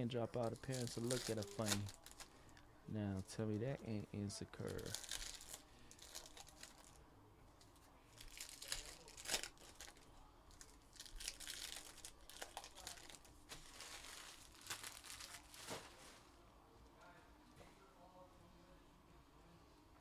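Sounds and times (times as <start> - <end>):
plastic wrappers tearing and crinkling: 0.4 - 2.4, 4.6 - 7.0, 7.7 - 16.2.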